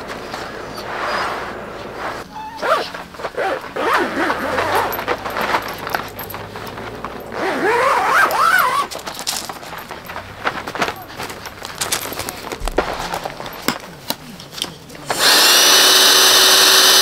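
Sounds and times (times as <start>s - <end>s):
fabric mats sliding and scraping: 0.0s - 14.6s.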